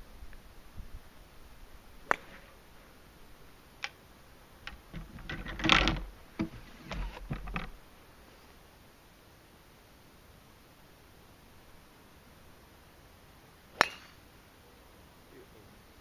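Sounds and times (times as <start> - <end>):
small clicks and knocks: 4.6 - 7.8
golf driver striking ball: 13.7 - 14.2.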